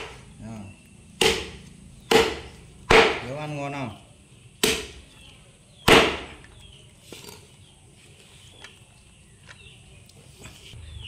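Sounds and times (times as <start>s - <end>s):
cleaver chopping meat: 1.2s - 3.4s, 4.6s - 5.0s, 5.8s - 6.4s.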